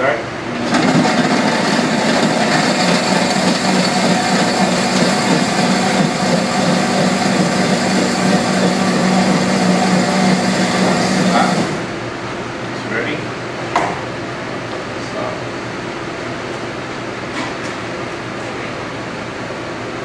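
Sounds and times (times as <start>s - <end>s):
blender blending ice: 0.5s - 12.0s.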